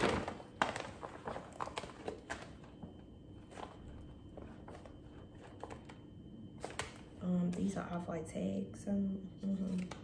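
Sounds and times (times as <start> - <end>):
plastic tote bag crinkling: 0.0 - 2.9.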